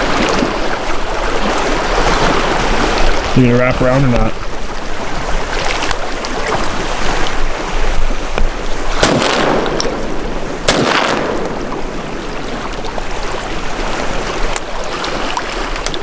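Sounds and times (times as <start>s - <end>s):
waves: 0.0s - 16.0s
wind: 0.0s - 16.0s
shotgun shots with echo: 9.0s - 11.7s.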